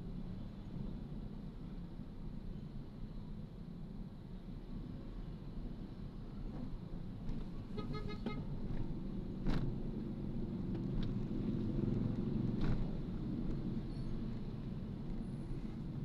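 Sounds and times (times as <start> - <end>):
road traffic rumble: 5.9 - 16.0.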